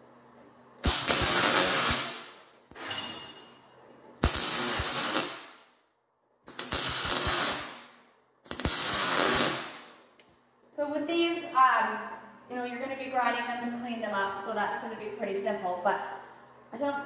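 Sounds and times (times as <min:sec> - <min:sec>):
welding arc crackling: 0:00.8 - 0:02.9, 0:04.2 - 0:05.7, 0:06.5 - 0:10.0.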